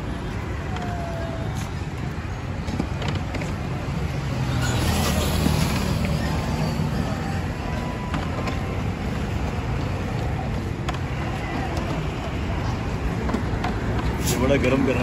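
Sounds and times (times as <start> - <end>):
traffic rumble: 0.0 - 15.0
vehicle passing: 3.4 - 15.0.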